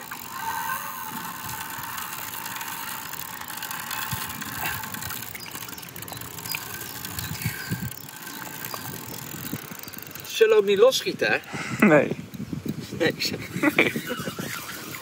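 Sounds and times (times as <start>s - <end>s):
fishing reel drag ratcheting: 0.0s - 15.0s.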